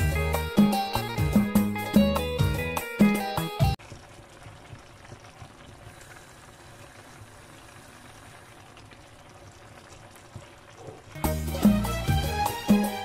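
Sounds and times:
sauce bubbling in clay dish: 3.7 - 11.6.

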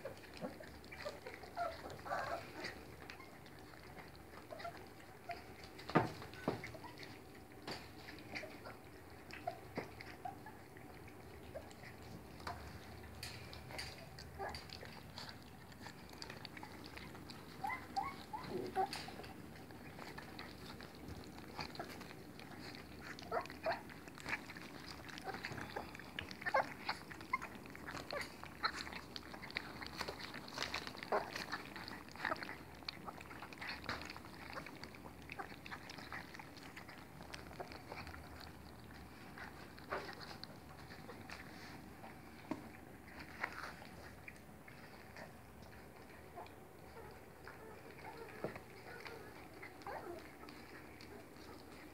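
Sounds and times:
puppies lapping and slurping: 0.0 - 51.9
puppy squeaks: 17.6 - 18.9.

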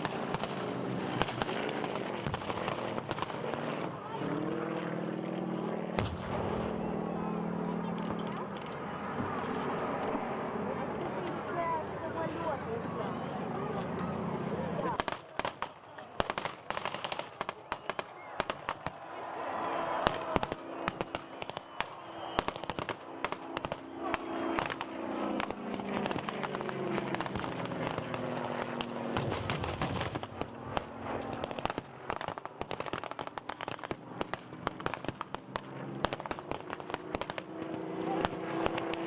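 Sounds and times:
low continuous drone: 0.0 - 15.0
rifle and machine gun fire: 15.0 - 37.6.

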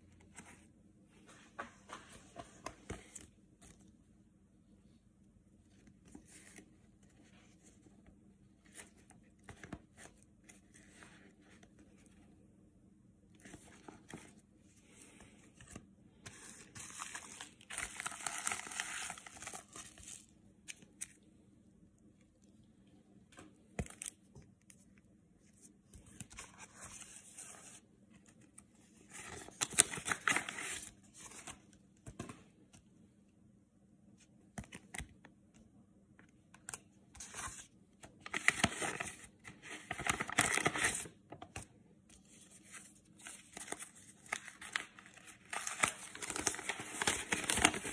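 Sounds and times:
paper rustling and tearing: 16.3 - 20.3, 43.5 - 47.9.

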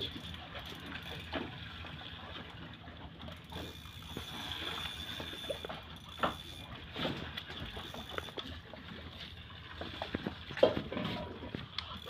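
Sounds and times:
fishing reel clicking: 0.0 - 1.4, 3.2 - 6.8, 7.5 - 8.5, 11.7 - 12.0.

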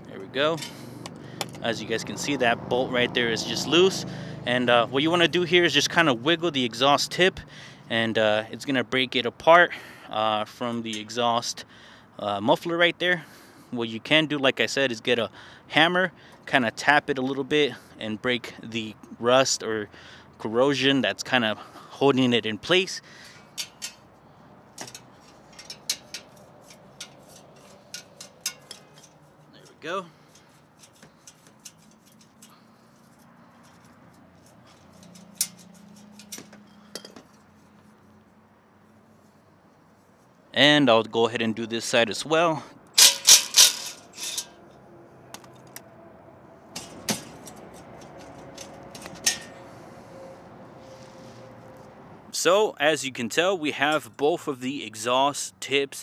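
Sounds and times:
metal clinks and scrapes: 0.5 - 1.6, 23.2 - 38.2, 42.9 - 44.8, 46.7 - 51.9
hammer tapping metal exhaust tip: 23.5 - 24.1, 24.7 - 32.8.

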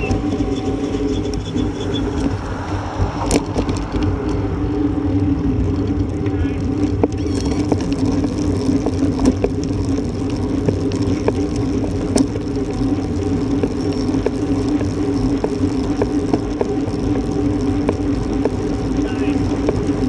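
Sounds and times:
bike tyres humming on asphalt: 0.0 - 20.0
wind buffeting microphone: 0.0 - 20.0
small ticks and knocks: 5.7 - 20.0.

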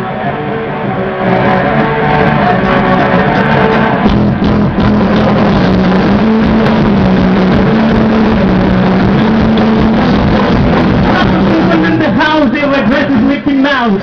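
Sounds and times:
distorted electric guitar: 0.0 - 14.0
drum hits: 4.0 - 12.1.

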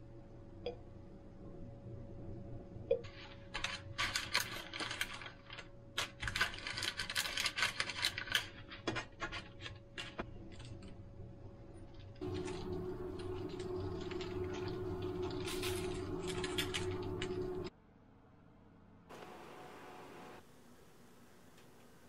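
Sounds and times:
faint steady hum: 0.0 - 22.0
baking paper crinkling: 3.1 - 11.0, 11.9 - 17.7.

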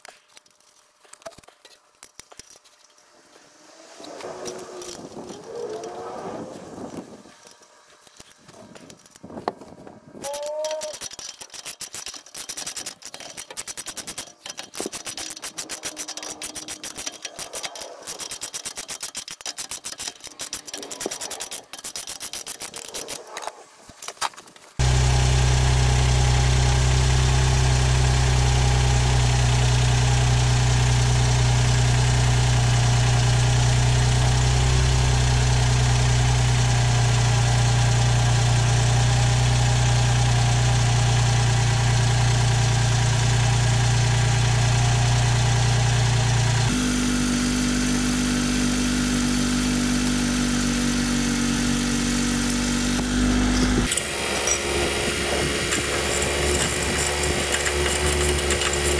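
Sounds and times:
socket ratchet clicking: 10.2 - 23.4
car engine idling: 24.8 - 58.9.

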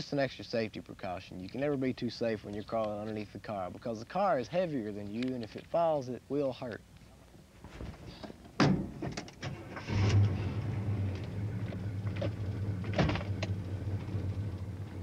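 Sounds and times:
car engine idling: 9.5 - 15.0.

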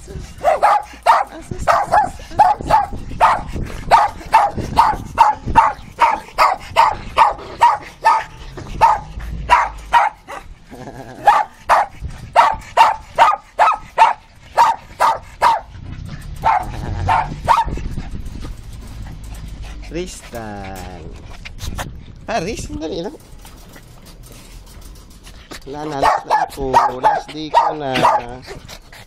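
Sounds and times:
small dogs barking: 0.4 - 10.5, 11.2 - 15.7, 16.4 - 17.8, 26.0 - 28.5.

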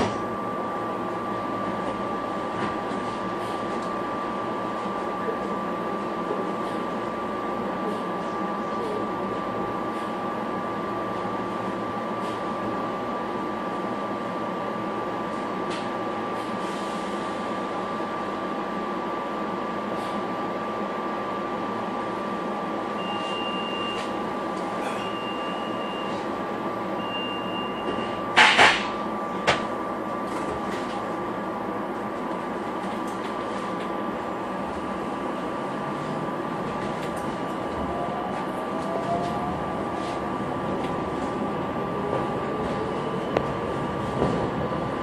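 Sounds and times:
train equipment hum: 0.0 - 27.0, 27.8 - 45.0
warning beeps: 23.0 - 24.2, 24.9 - 26.2, 27.0 - 28.2
train doors banging shut: 27.8 - 29.7.

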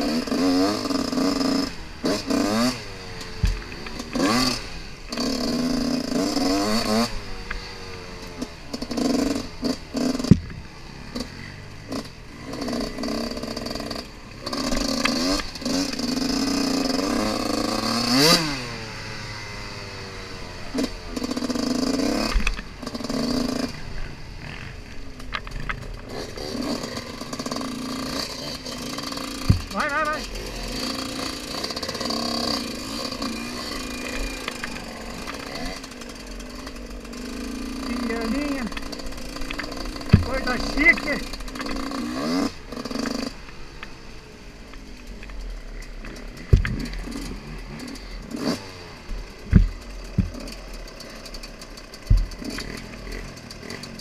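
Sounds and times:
dirt bike engine revving: 0.0 - 54.0
bike clattering over ground: 44.8 - 54.0.

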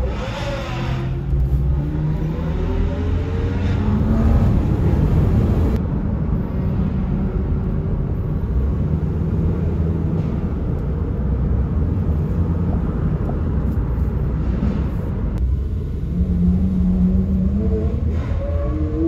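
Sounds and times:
engine revving: 0.0 - 5.8
low rumble of cars rolling: 0.0 - 19.0.

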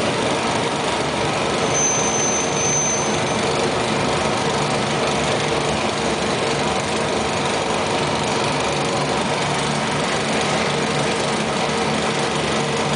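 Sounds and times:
lathe motor humming: 3.3 - 12.9.

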